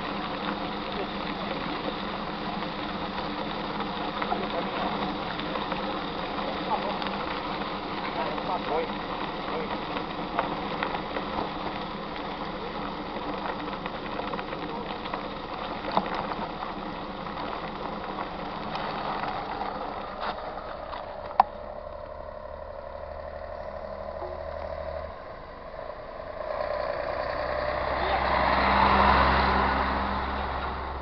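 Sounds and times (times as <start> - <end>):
bike tyres on gravel: 0.0 - 31.0
steady whir: 0.0 - 31.0.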